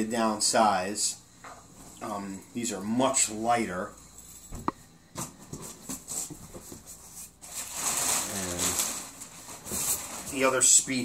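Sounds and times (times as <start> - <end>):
plastic bag crinkling: 7.3 - 11.0.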